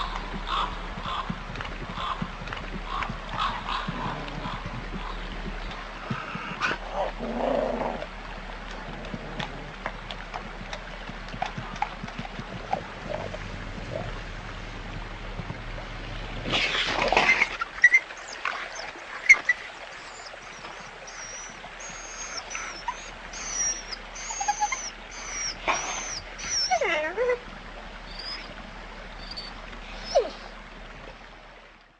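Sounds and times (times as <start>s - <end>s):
wolves chewing and crunching: 0.0s - 26.9s
wolves whining: 11.5s - 14.2s, 17.1s - 27.4s, 28.1s - 28.5s, 29.2s - 30.5s
wolves whimpering and yipping: 17.2s - 27.4s, 28.1s - 28.5s, 29.2s - 30.5s.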